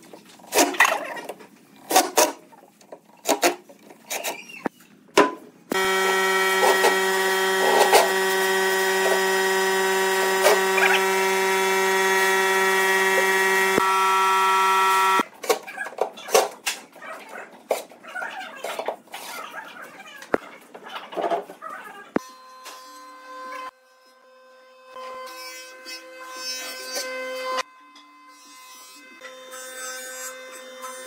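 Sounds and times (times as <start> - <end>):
impact driver driving screws: 5.7 - 15.2
steady electric hum: 5.7 - 15.2.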